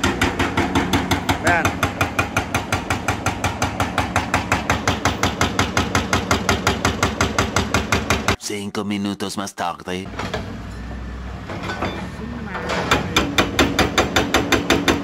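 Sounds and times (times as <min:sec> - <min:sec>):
excavator engine running: 0:00.0 - 0:08.4, 0:10.1 - 0:14.9
hydraulic breaker pounding concrete: 0:00.0 - 0:08.4, 0:11.4 - 0:15.0.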